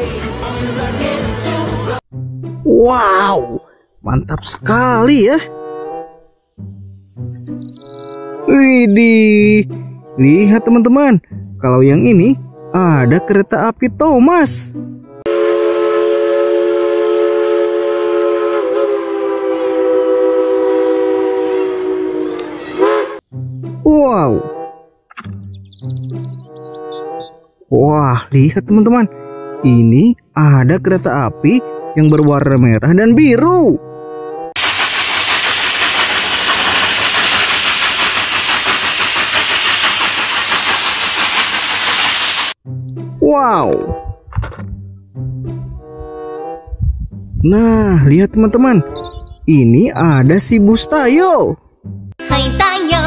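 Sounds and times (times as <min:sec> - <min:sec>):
steam locomotive chime whistle: 0:15.3 - 0:23.2
locomotive chuffing: 0:34.6 - 0:42.6
steam locomotive hissing: 0:34.6 - 0:42.6.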